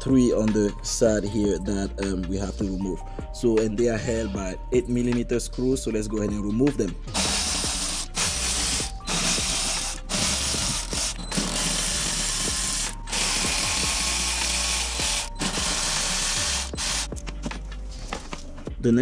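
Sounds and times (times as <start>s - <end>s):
power ratchet spinning: 7.1s - 17.2s.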